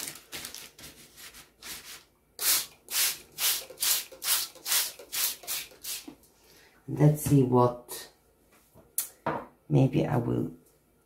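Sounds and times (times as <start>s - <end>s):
spray bottle squirts: 2.4s - 6.2s.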